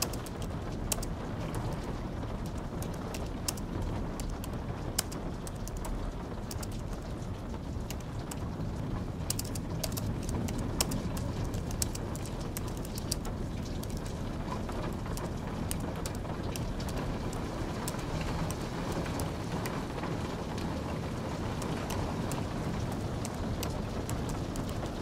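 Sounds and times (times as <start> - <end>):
keyboard typing: 0.0 - 1.8, 9.2 - 14.1
rain hiss: 0.0 - 25.0.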